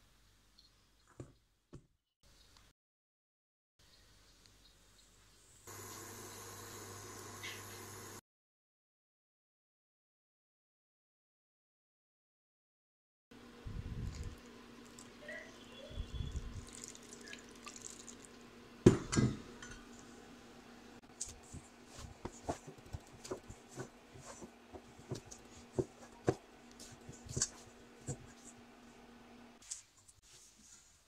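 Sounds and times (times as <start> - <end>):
water poured onto flour: 16.3 - 18.4
hands kneading dough in bowl: 21.0 - 28.7.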